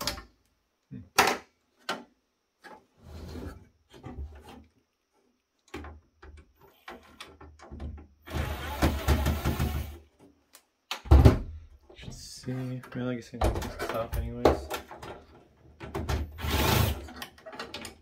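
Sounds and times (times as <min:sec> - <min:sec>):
parts knocking and rattling on metal: 0:12.9 - 0:16.3.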